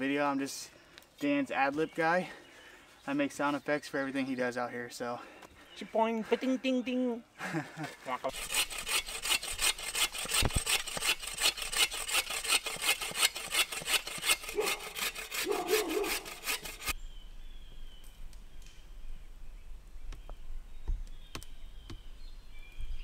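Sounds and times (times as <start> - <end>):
hand saw cutting log: 8.2 - 17.0.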